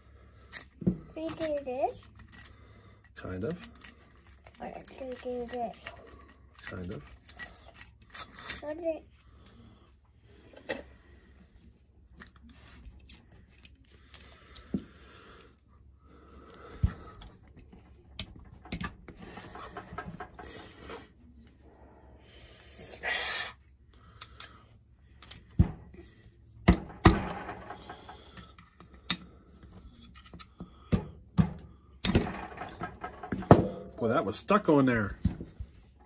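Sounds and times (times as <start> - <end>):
screwdriver clicking and scraping metal: 0.4 - 8.8.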